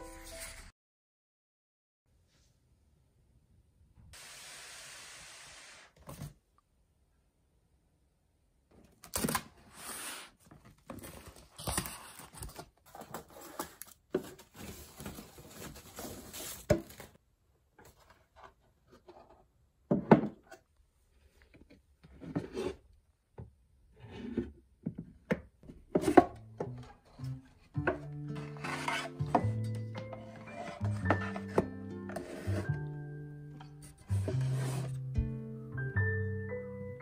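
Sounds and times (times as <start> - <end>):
cardboard tearing and rustling: 10.9 - 17.2.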